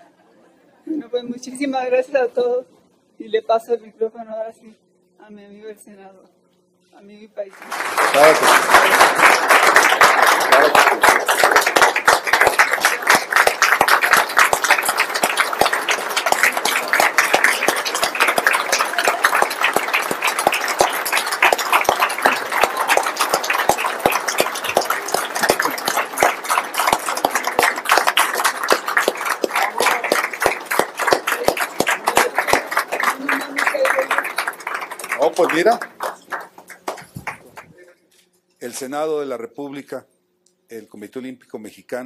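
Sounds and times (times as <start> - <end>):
audience clapping: 7.5 - 37.8.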